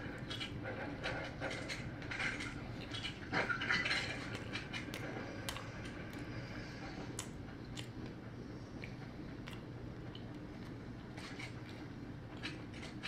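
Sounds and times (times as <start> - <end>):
closed-mouth chewing: 0.0 - 13.0
steady low hum: 0.0 - 13.0
biting into crunchy fried chicken: 8.8 - 12.6.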